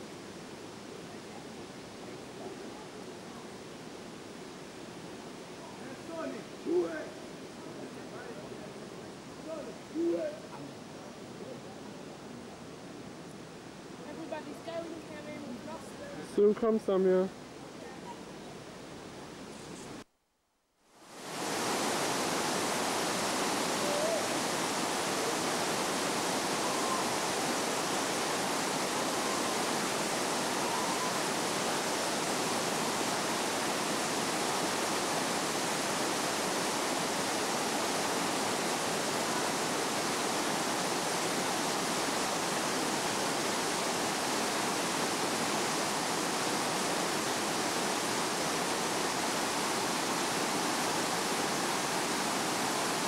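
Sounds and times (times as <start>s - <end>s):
water cascading over rocks: 21.0s - 53.0s.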